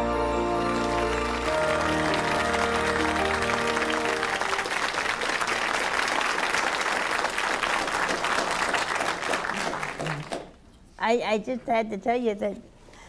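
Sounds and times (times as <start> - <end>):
theme music: 0.0 - 5.6
audience applauding: 0.5 - 10.6.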